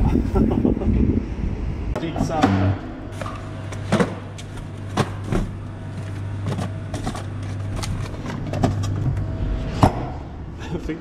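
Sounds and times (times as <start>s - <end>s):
steady low hum: 0.0s - 11.0s
freezer compartment knocks and clunks: 4.9s - 5.6s.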